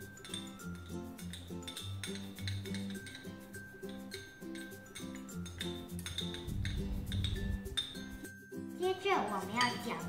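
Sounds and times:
bell-like plucked notes: 0.1s - 8.7s
rhythmic bass line: 6.4s - 8.3s.

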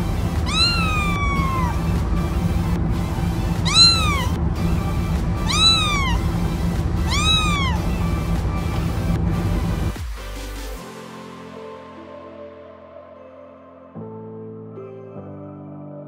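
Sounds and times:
background music: 0.0s - 16.0s
kitten meowing: 0.4s - 2.0s, 3.6s - 4.4s, 5.2s - 6.4s, 7.0s - 8.0s.

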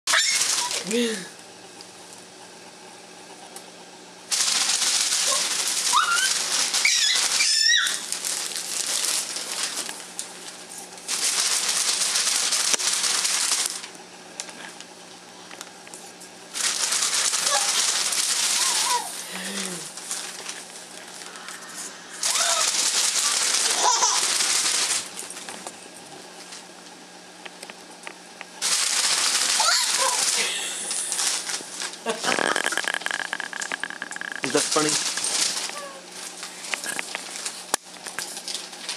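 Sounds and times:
paper flyer crinkling: 0.1s - 0.8s, 4.3s - 14.7s, 16.5s - 25.7s, 28.6s - 38.9s
baby giggling and squealing: 18.6s - 19.2s.

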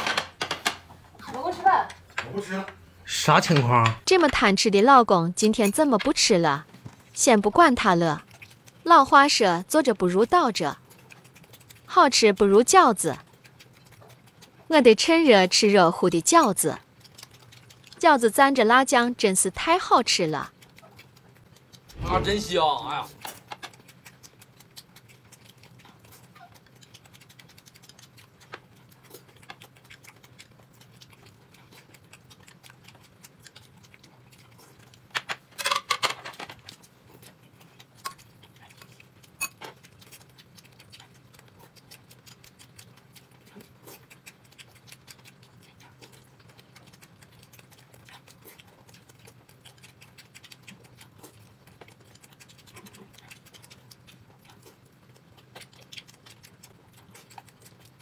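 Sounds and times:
person chewing: 8.2s - 8.9s, 10.7s - 11.9s, 13.2s - 14.7s, 16.8s - 18.0s, 20.4s - 22.2s, 23.0s - 58.0s.

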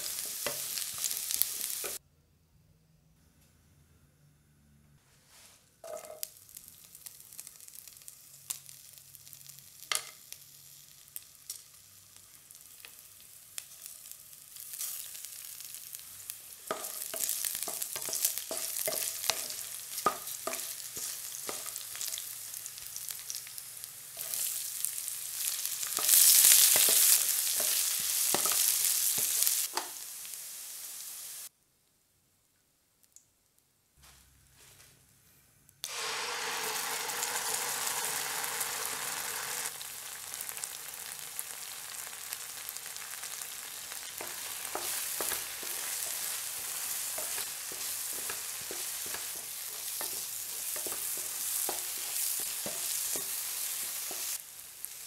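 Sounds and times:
spices sizzling in hot oil: 0.0s - 2.0s, 5.8s - 31.5s, 35.8s - 55.0s
wooden spatula tapping pan: 16.7s - 21.7s.

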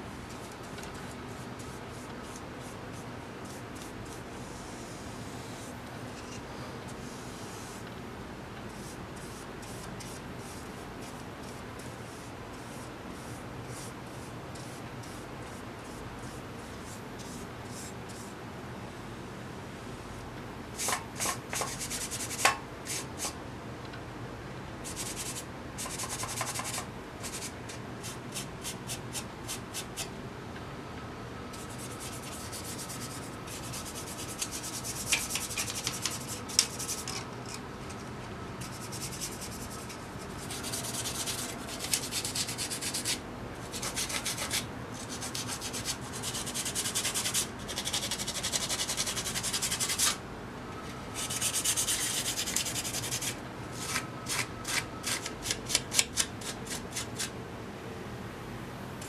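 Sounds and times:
paintbrush stroking paint: 8.7s - 18.3s, 31.6s - 37.2s, 38.6s - 50.2s.

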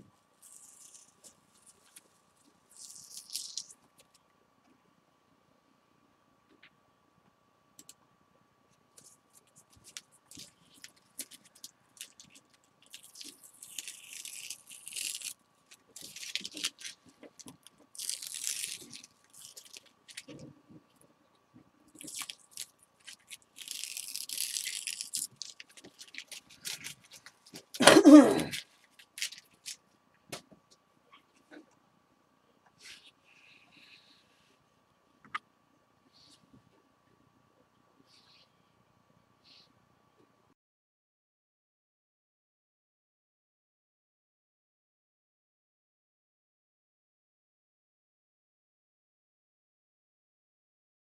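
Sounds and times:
paper crackles and rustles: 9.0s - 20.5s, 22.0s - 27.9s
tape tearing off paper: 9.8s - 20.4s, 22.0s - 29.8s.

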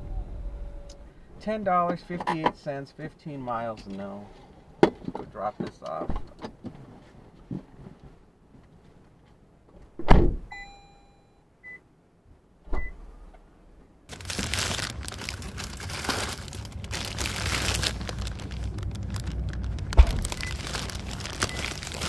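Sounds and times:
car door thump: 10.0s - 10.5s.

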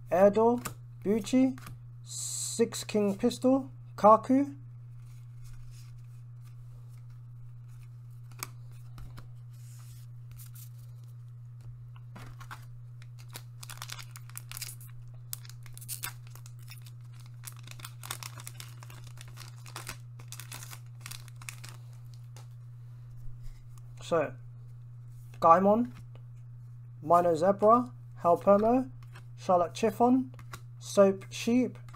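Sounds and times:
steady low hum: 0.0s - 31.9s
card pack wrapper tearing and crinkling: 12.2s - 22.5s.

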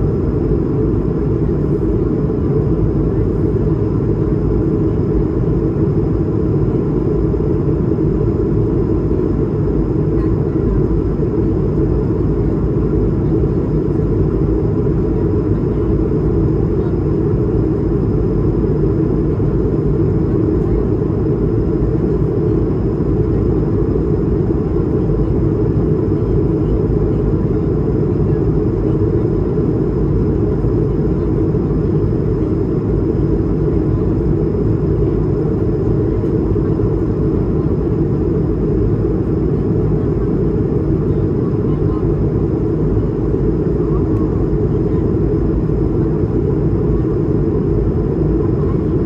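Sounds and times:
airliner cabin engine hum: 0.0s - 49.0s.

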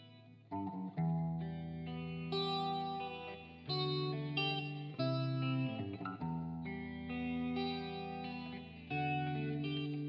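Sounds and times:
guitar picking arpeggiated notes: 0.0s - 10.0s.

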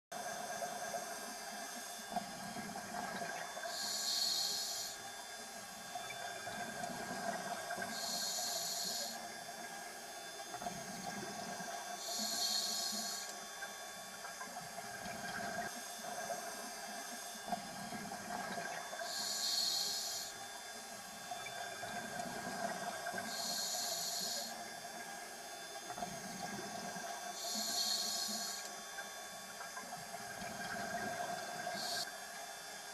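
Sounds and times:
regulator inhale hiss: 3.6s - 5.0s, 7.8s - 9.2s, 12.0s - 13.4s, 19.0s - 20.4s, 23.2s - 24.6s, 27.4s - 28.7s, 31.6s - 32.1s.

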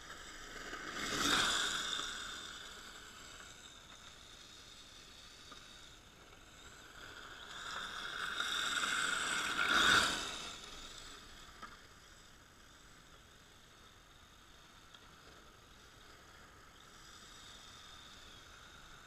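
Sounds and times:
rc car electric motor whining: 0.1s - 13.4s.

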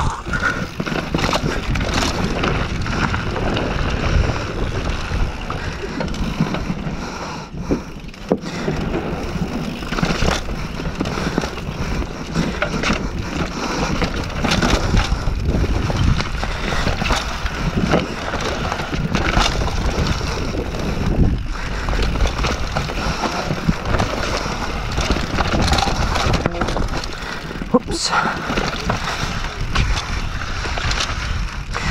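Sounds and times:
wind on microphone: 0.0s - 6.4s, 13.9s - 27.7s
bike rattling: 0.0s - 31.9s
bike tyres on dirt trail: 0.0s - 31.9s.

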